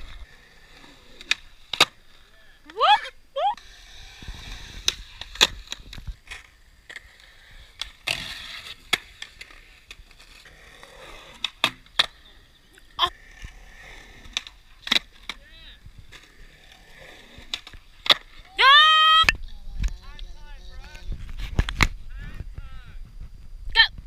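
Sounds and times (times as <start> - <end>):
skateboard wheels rolling: 0.0 - 23.6
skateboard clacking on concrete: 4.6 - 15.5, 16.1 - 20.4.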